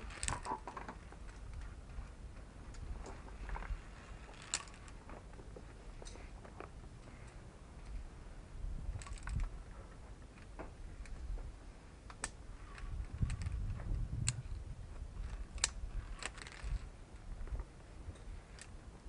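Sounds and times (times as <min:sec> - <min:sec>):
metal gear clicking on rock: 0:00.0 - 0:01.6, 0:04.3 - 0:05.0, 0:09.0 - 0:09.5, 0:15.2 - 0:16.8.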